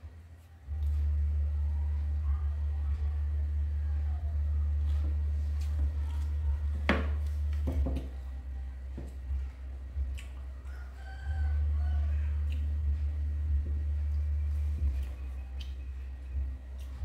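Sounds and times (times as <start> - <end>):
low hum: 0.0 - 17.0
soft chewing: 4.5 - 17.0.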